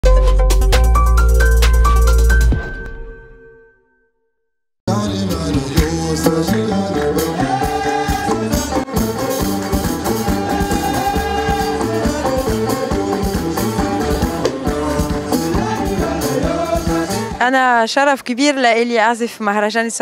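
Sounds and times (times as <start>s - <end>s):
deep bass line: 0.0s - 2.6s, 4.9s - 17.4s
flute melody: 7.7s - 15.4s.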